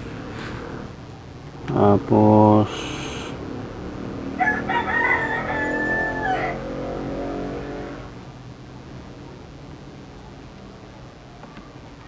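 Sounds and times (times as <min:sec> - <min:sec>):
rooster crowing: 0:04.3 - 0:07.8.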